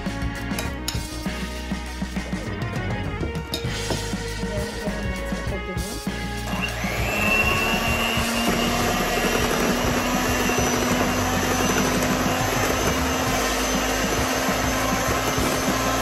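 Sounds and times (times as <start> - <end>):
electric mixer running: 4.2 - 16.0.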